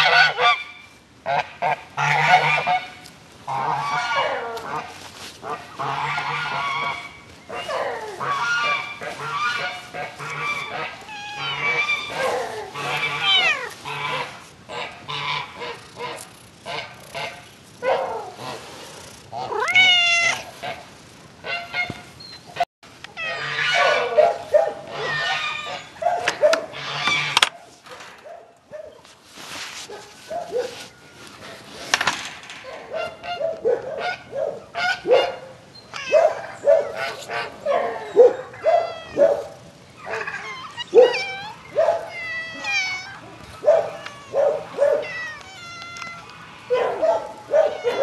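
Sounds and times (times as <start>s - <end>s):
cats meowing: 10.5s - 14.4s, 19.4s - 20.6s, 35.9s - 48.0s.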